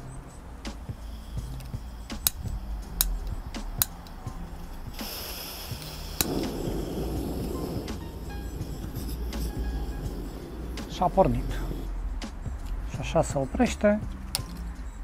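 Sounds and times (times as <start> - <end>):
gas hissing: 0.6 - 12.0
burner rushing: 0.7 - 11.9.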